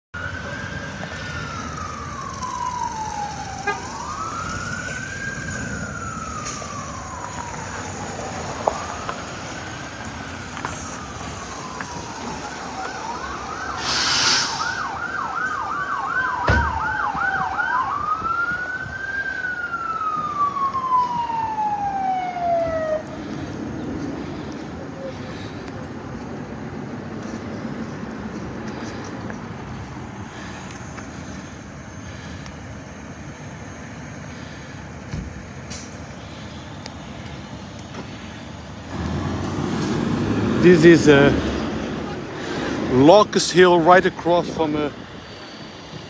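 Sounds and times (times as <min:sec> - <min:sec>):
siren wailing and yelping: 0:00.2 - 0:23.7
short hiss burst: 0:13.8 - 0:14.8.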